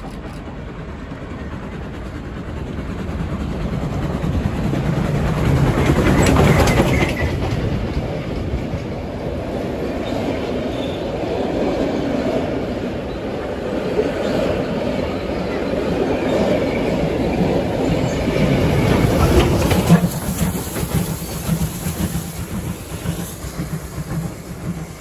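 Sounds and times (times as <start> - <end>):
steam locomotive passing: 0.0 - 25.0
carriage wheels rumbling on rails: 16.7 - 25.0.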